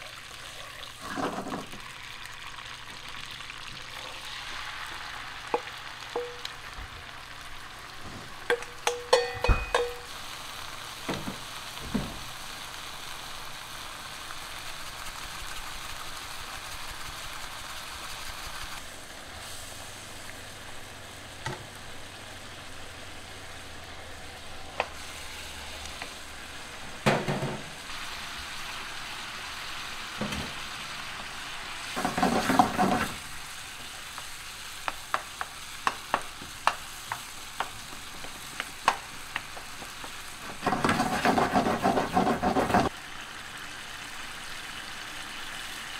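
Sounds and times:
frying sizzle in a pan: 0.0s - 45.9s
utensil knock: 8.5s - 10.1s
scraping stir: 40.5s - 42.9s.

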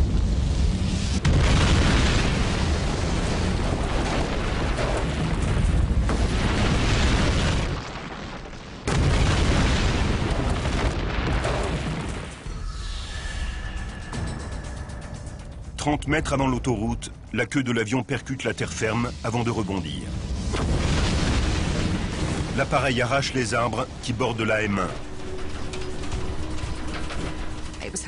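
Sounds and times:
music: 12.5s - 17.6s, 24.5s - 28.0s.

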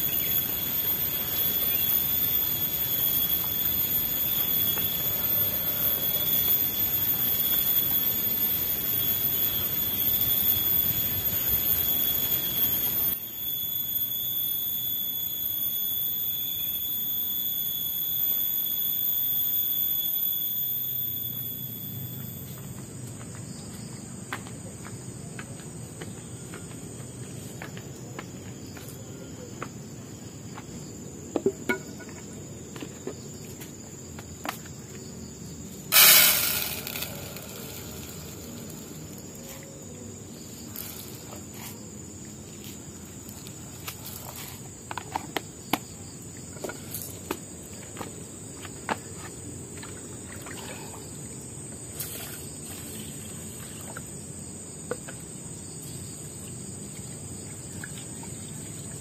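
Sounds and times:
insects droning: 0.0s - 59.0s
bucket and pot knocks: 31.4s - 32.2s.

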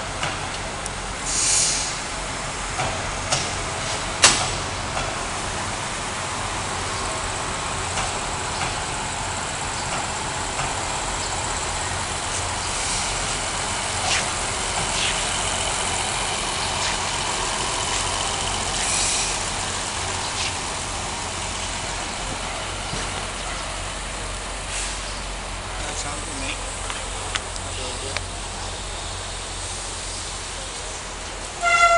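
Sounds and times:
train engine hum: 0.0s - 31.9s
train rolling past: 0.0s - 31.9s
thin high whine: 16.2s - 19.6s.

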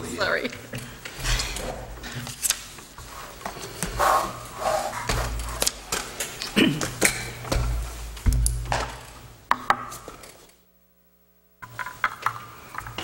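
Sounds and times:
low thumps: 7.4s - 9.3s.

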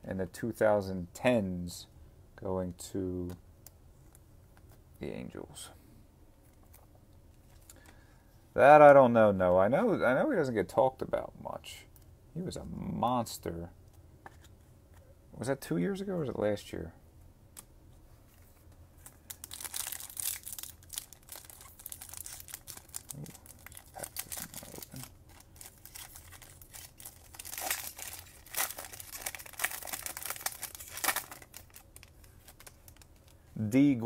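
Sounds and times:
foil wrapper crinkling and tearing: 19.0s - 33.4s.

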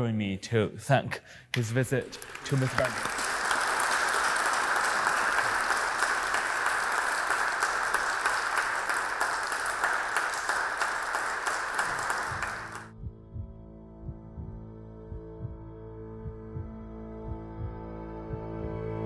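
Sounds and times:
audience applauding: 1.6s - 12.9s.

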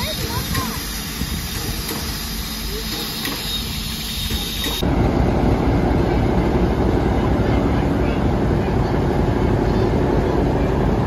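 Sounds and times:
steam locomotive hissing steam: 0.0s - 4.8s
steady mechanical noise: 0.0s - 11.0s.

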